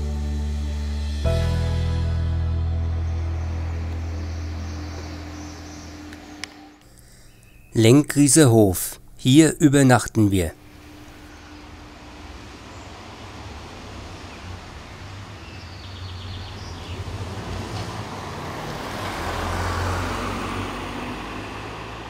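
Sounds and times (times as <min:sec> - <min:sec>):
car driving past: 0:01.2 - 0:06.8, 0:10.9 - 0:22.0.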